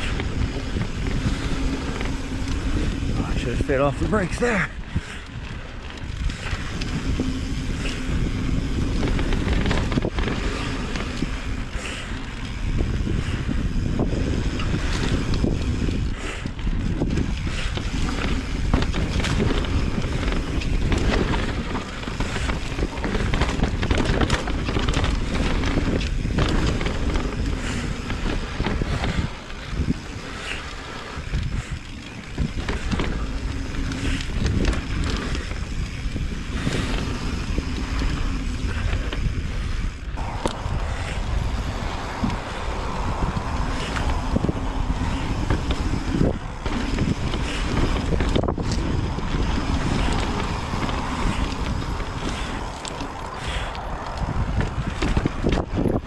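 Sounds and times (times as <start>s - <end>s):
bike tyre noise: 0.0s - 56.0s
wind buffeting microphone: 0.0s - 56.0s
bike clattering over rocks: 16.7s - 40.8s.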